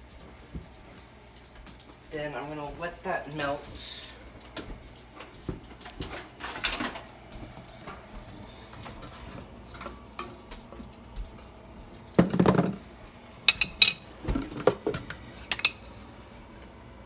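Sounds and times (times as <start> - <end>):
metallic clinks and taps: 13.5 - 14.0, 15.5 - 15.8.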